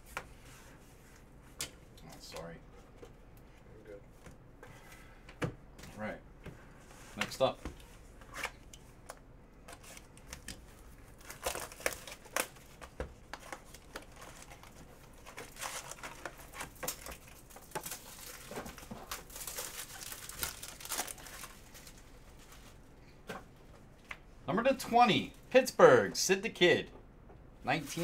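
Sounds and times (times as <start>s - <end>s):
card pack crinkling and tearing: 11.1s - 22.0s.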